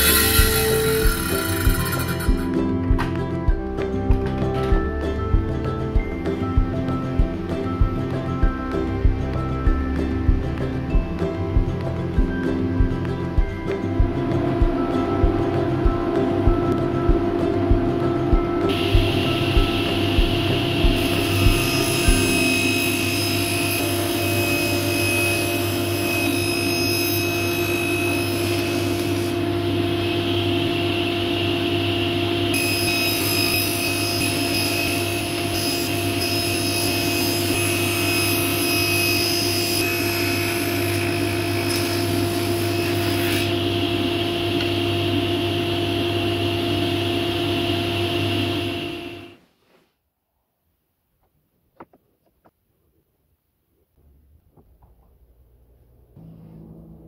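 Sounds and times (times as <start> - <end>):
table saw humming: 0.0 - 3.2, 14.2 - 49.4.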